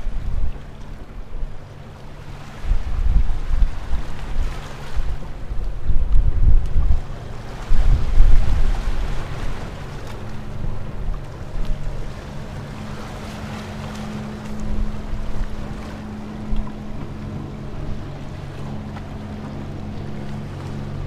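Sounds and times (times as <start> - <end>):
motorboat engine hum: 0.0 - 21.0
wind on microphone: 0.0 - 21.0
waves washing over rocks: 2.4 - 21.0.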